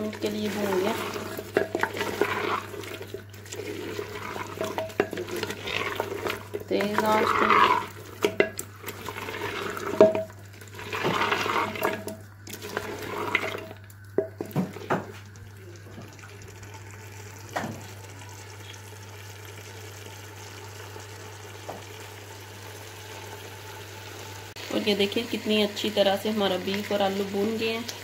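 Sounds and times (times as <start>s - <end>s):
wooden spatula scraping a pot: 0.0s - 15.2s
food sizzling: 0.0s - 28.0s.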